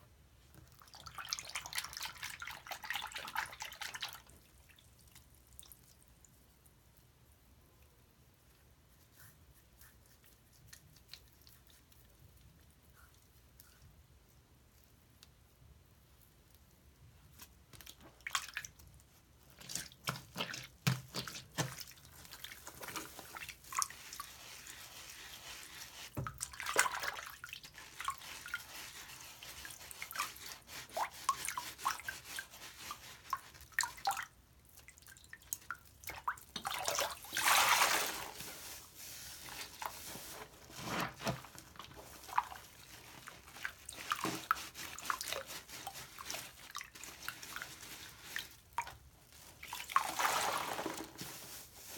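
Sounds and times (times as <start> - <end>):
wet sponge squishing: 0.5 - 7.4, 8.4 - 15.4, 16.2 - 51.9
water splashing and dripping: 33.3 - 38.8.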